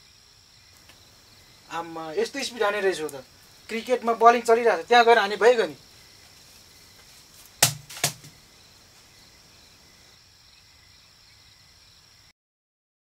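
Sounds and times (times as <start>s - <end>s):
faint steady hiss: 0.0s - 12.3s
broom smacking a person: 7.6s - 8.4s.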